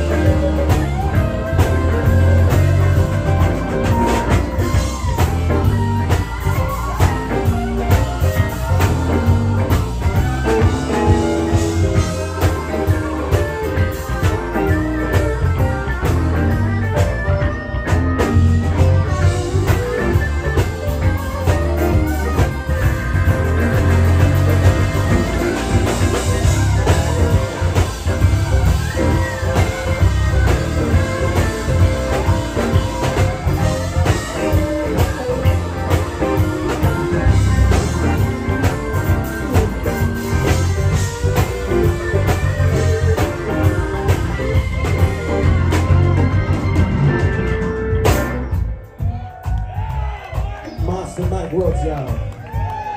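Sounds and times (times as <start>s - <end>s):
electric guitar lead phrases: 0.0s - 49.0s
live blues band playing: 0.0s - 52.9s
low bass: 0.0s - 52.9s.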